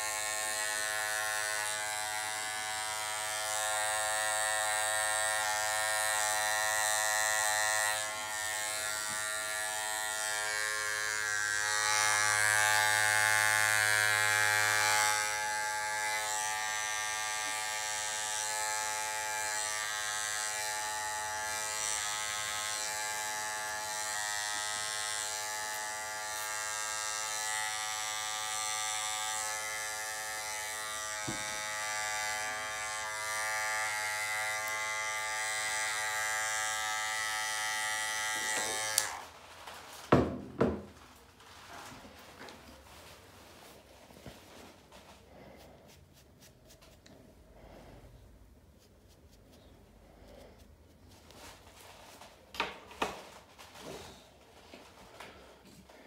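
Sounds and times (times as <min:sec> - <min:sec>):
hair clippers buzzing: 0:00.0 - 0:41.0.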